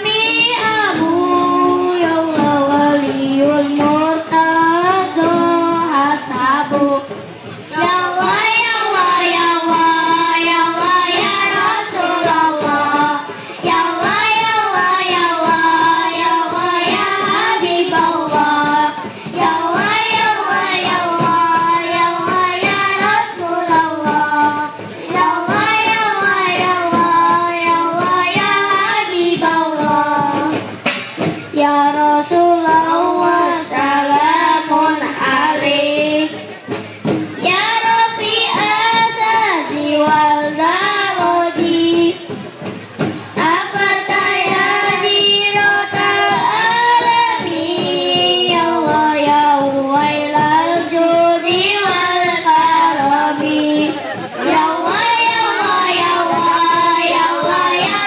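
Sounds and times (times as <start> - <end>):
children singing through microphones: 0.0 - 58.0
hand drums: 0.0 - 58.0
large bass drum: 0.0 - 58.0.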